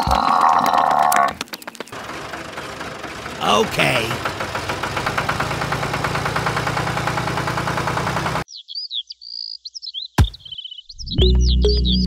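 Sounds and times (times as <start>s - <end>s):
toy tractor motor running: 1.9s - 8.4s.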